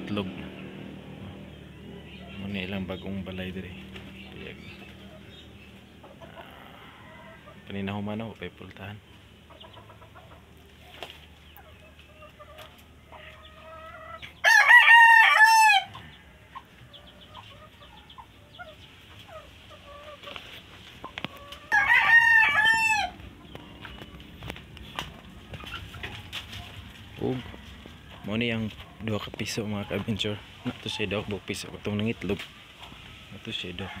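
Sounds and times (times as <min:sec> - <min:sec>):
hens clucking softly: 0:03.9 - 0:14.4, 0:15.9 - 0:21.8
rooster crowing: 0:06.3 - 0:07.7, 0:14.4 - 0:16.5, 0:21.6 - 0:23.2, 0:33.5 - 0:34.0.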